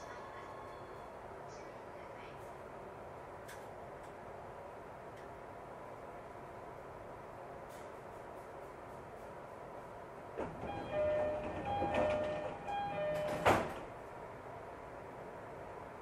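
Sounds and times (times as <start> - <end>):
sliding doors shutting with thud: 10.4 - 14.0.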